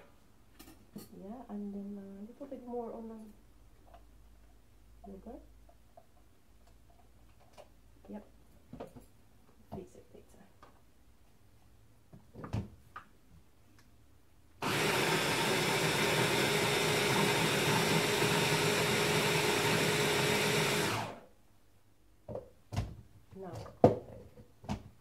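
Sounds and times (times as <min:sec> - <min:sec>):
stick blender motor running: 0:14.6 - 0:21.2.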